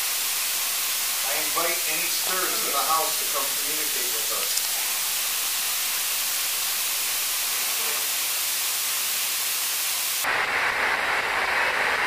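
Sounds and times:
filtered bright hiss: 0.0s - 10.2s
static hiss: 0.0s - 12.0s.

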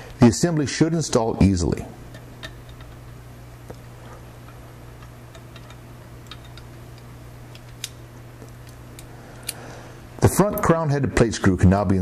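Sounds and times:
steady low hum: 0.0s - 12.0s
small metal clicks: 4.4s - 9.6s.

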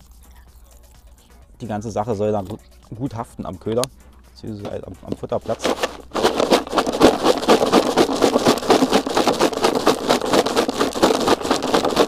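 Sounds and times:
seeds rattling in plastic box: 4.7s - 12.0s.

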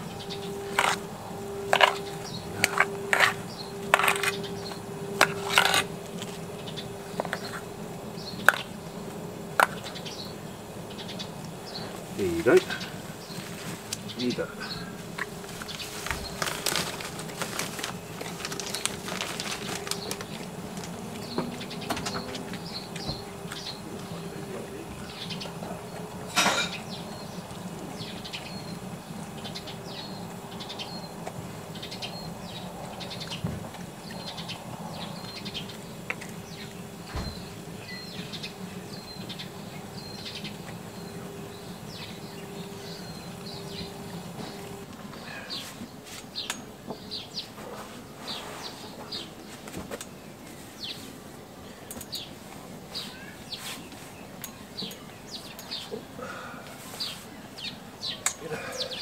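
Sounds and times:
low steady hum: 0.0s - 59.0s
small birds chirping: 0.0s - 59.0s.

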